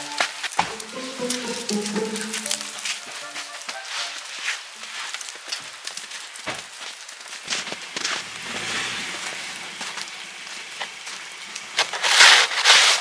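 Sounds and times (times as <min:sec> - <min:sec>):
footsteps crunching in snow: 0:00.0 - 0:13.0
snow shovel scraping wooden deck: 0:07.5 - 0:11.0, 0:11.7 - 0:13.0.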